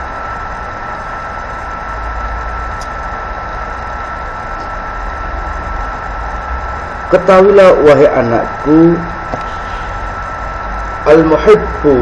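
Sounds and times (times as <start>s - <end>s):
constant high whine: 0.0s - 12.0s
hiss: 9.3s - 10.8s.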